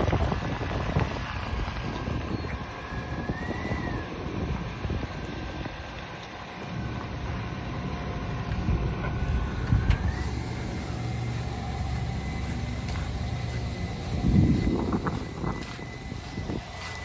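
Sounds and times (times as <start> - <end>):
vehicle engine running: 0.0 - 17.0.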